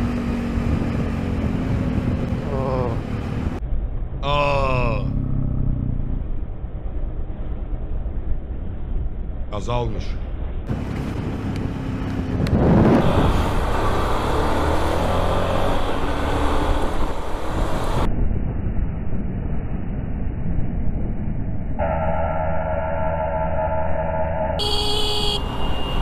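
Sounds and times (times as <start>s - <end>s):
motorcycle engine and road noise: 0.0s - 22.4s, 24.3s - 26.0s
rushing transition effect: 12.5s - 24.6s
car horn sounding: 24.6s - 26.0s.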